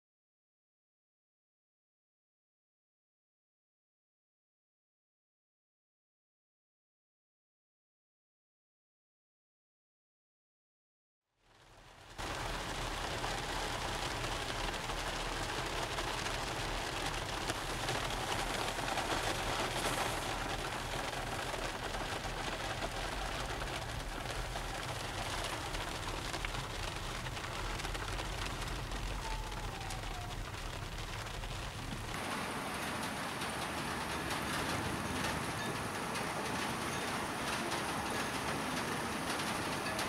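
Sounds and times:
rain on a car roof: 0:11.4 - 0:40.0
car rumble: 0:12.2 - 0:36.6.

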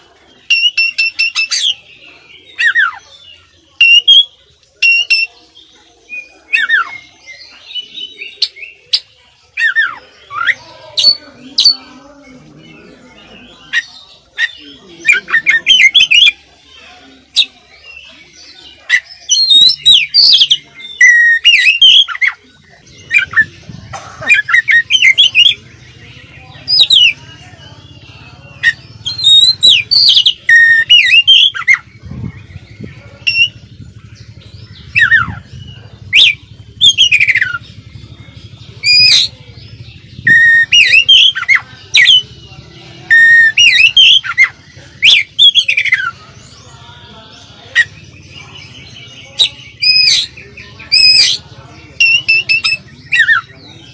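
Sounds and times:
bird singing whistled phrases: 0:00.4 - 0:01.8, 0:03.7 - 0:11.8, 0:17.4 - 0:22.4, 0:28.6 - 0:31.8, 0:33.2 - 0:33.6, 0:36.1 - 0:37.6, 0:40.2 - 0:42.3, 0:43.1 - 0:46.2, 0:52.0 - 0:53.6.

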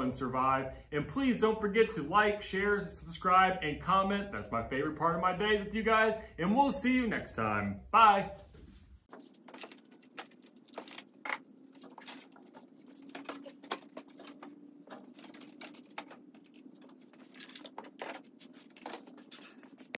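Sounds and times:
low steady hum: 0:00.0 - 0:20.0
model airplane parts clattering: 0:09.1 - 0:20.0.

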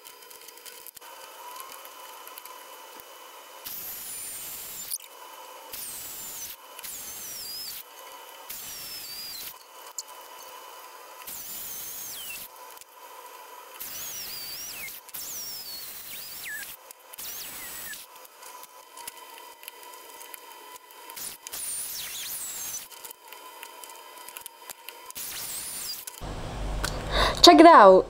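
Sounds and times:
drill press motor whine: 0:01.2 - 0:09.7, 0:10.3 - 0:12.5, 0:13.2 - 0:18.6, 0:25.3 - 0:27.2.

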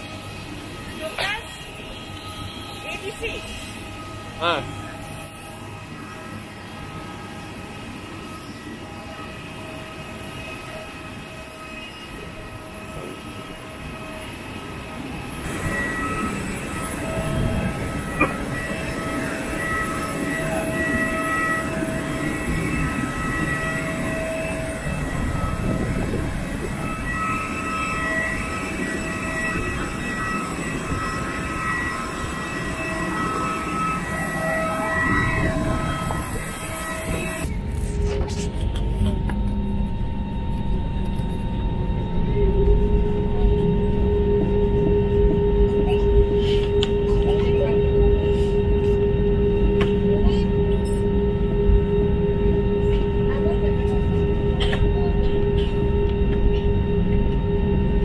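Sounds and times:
jet engine whine: 0:00.0 - 0:58.0
low rumble: 0:15.4 - 0:58.0.

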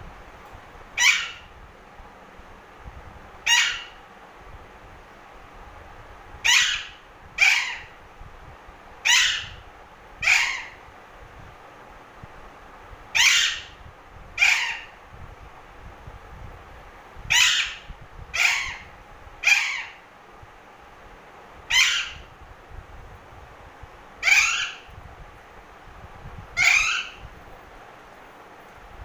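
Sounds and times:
parrot squawking: 0:01.0 - 0:01.5, 0:03.4 - 0:04.0, 0:06.4 - 0:08.0, 0:09.0 - 0:09.6, 0:10.2 - 0:10.8, 0:13.2 - 0:13.8, 0:14.4 - 0:15.0, 0:17.3 - 0:20.0, 0:21.7 - 0:22.3, 0:24.2 - 0:24.9, 0:26.6 - 0:27.2.

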